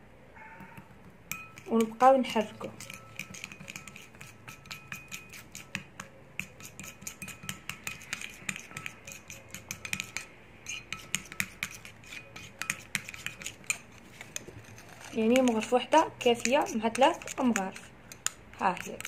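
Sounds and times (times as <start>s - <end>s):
ceramic bowl ringing: 0.6s - 1.8s
metal spoon clinking in bowl: 1.3s - 13.8s, 15.0s - 19.0s.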